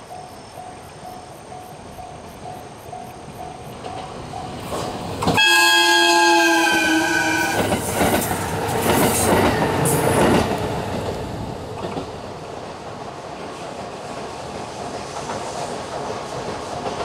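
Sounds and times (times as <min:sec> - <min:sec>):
train multi-tone horn: 0:05.3 - 0:07.8.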